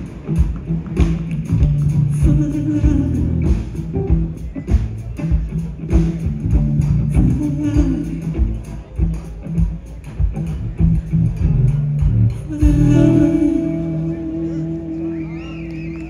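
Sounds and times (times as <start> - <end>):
drum kit beat: 0.0 - 13.6
electric bass: 0.0 - 16.0
electric guitar: 0.0 - 16.0
person singing: 1.9 - 4.2, 7.0 - 8.7, 12.3 - 16.0.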